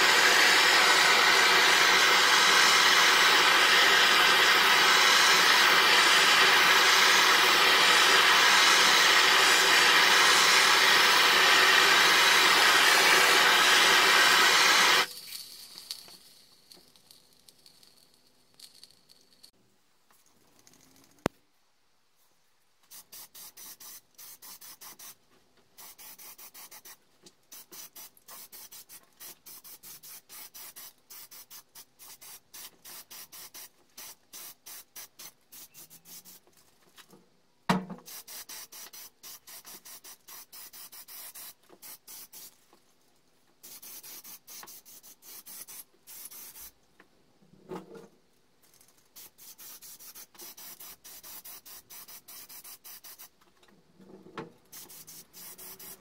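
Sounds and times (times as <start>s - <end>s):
spray can hissing: 0.0s - 18.0s, 22.9s - 25.2s, 25.8s - 36.4s, 38.0s - 42.6s, 43.6s - 46.8s, 49.2s - 53.4s, 54.7s - 56.0s.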